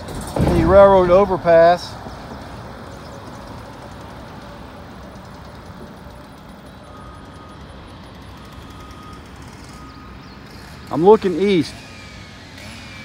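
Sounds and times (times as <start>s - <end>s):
distant construction machinery: 0.0s - 13.0s
faint beep: 6.8s - 7.7s.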